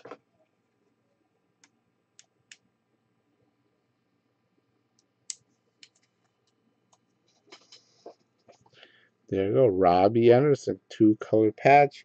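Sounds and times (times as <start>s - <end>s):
faint clicks and taps: 4.9s - 8.9s.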